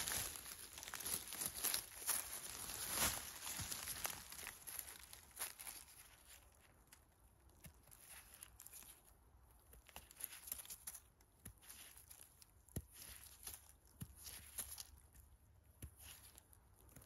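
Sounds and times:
knife peeling mushroom skin: 9.6s - 17.0s.

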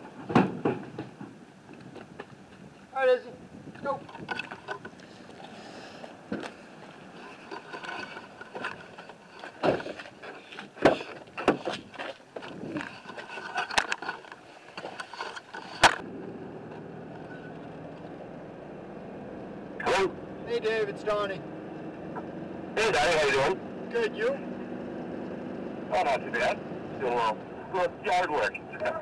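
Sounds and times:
pickup driving hum inside cab: 16.0s - 29.0s.

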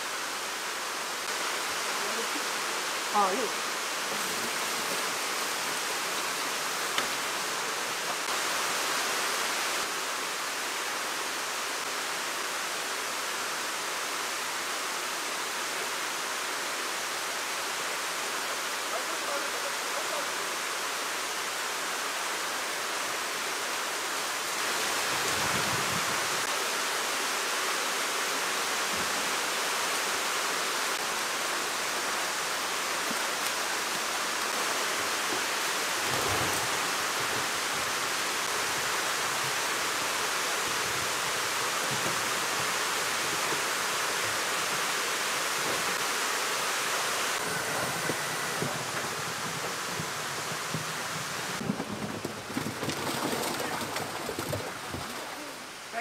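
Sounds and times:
water rushing and splashing: 0.0s - 56.0s.

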